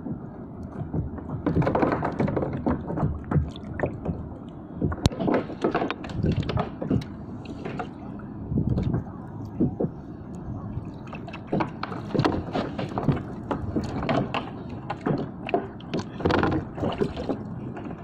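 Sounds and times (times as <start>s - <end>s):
water slapping against boat hull: 0.0s - 18.0s
fishing gear knocking and clicking: 11.4s - 17.4s.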